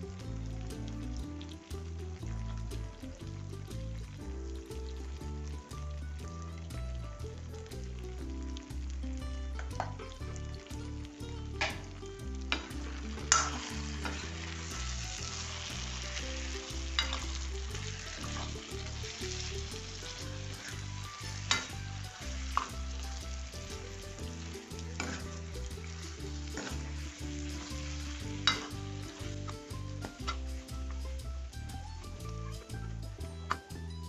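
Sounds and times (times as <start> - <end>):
fruit sizzling in hot oil: 0.0 - 34.0
steel ladle knocking a pan: 9.6 - 10.6, 11.6 - 30.5.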